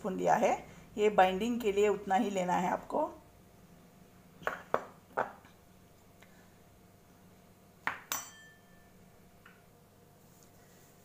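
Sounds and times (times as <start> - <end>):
steel bowls knocking and clinking: 7.9 - 8.8.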